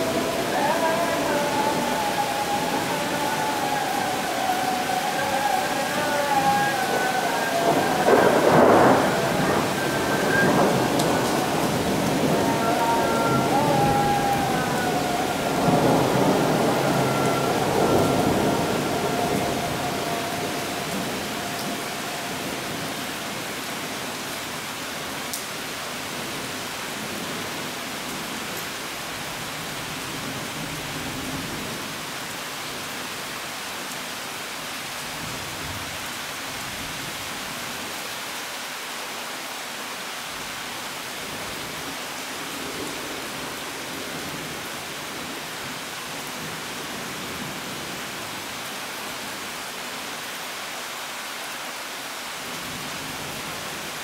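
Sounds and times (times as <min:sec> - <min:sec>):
distant thunder rumble: 0:00.0 - 0:23.6
heavy rain falling: 0:00.0 - 0:54.0.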